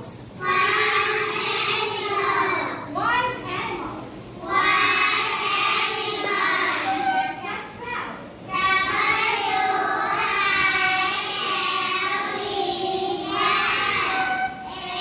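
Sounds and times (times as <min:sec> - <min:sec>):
children singing in unison: 0:00.4 - 0:02.7, 0:04.4 - 0:07.2, 0:08.5 - 0:15.0.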